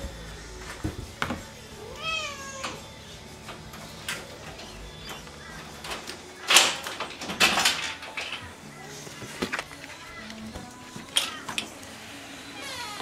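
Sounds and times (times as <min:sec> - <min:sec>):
cat meowing: 0:01.8 - 0:02.9, 0:12.6 - 0:13.0.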